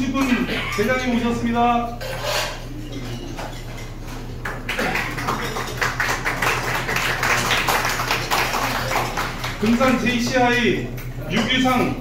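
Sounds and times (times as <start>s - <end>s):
tableware clinking: 2.0s - 4.3s
diners clapping: 3.4s - 11.6s.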